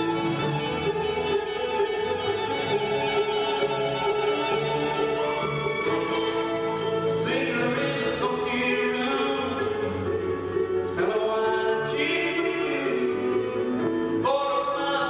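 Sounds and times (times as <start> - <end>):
acoustic guitar: 0.0 - 15.0
fiddle: 0.0 - 15.0
man singing: 7.1 - 15.0.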